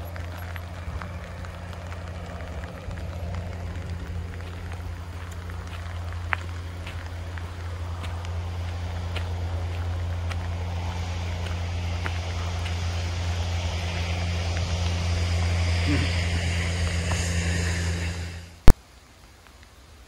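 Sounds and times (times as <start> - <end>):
motor engine humming: 0.0 - 18.7
hiss: 12.8 - 18.6.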